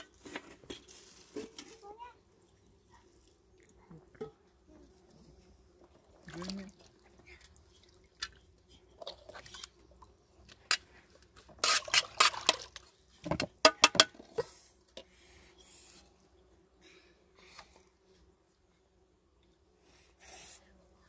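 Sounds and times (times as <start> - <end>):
spoon scraping pot: 11.4 - 12.6.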